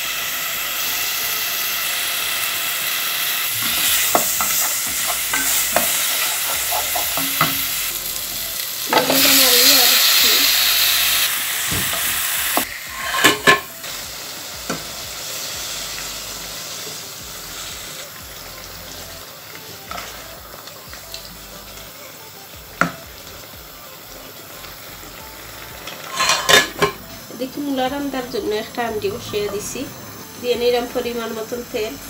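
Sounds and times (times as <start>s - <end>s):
curry sizzling in a pot: 0.0s - 32.0s
metal lid clattering: 13.0s - 13.7s, 26.1s - 27.0s.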